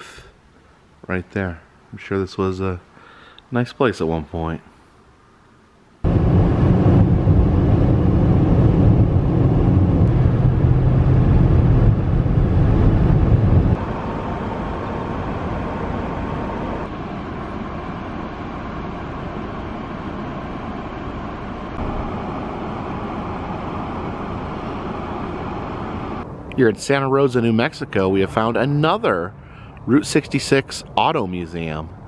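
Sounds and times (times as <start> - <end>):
outdoor ambience hiss: 0.0 - 8.3, 13.7 - 32.0
road and tyre noise in car: 6.0 - 26.6.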